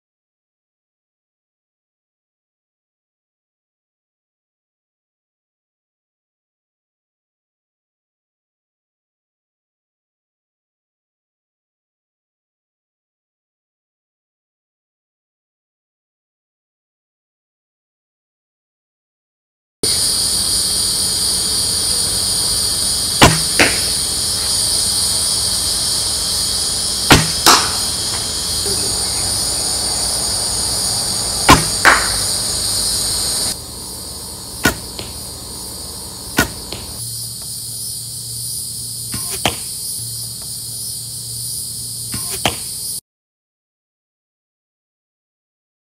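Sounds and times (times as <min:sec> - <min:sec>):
crickets chirping: 0:19.8 - 0:43.0
bowstring slap: 0:23.2 - 0:24.0, 0:27.1 - 0:28.3, 0:31.5 - 0:32.3, 0:34.6 - 0:35.2, 0:36.4 - 0:37.0, 0:39.1 - 0:39.7, 0:42.1 - 0:42.7
arrow hitting target: 0:23.2 - 0:24.6, 0:27.0 - 0:28.4, 0:31.4 - 0:32.3, 0:34.6 - 0:35.2, 0:36.3 - 0:37.0, 0:39.1 - 0:39.7, 0:42.1 - 0:42.8.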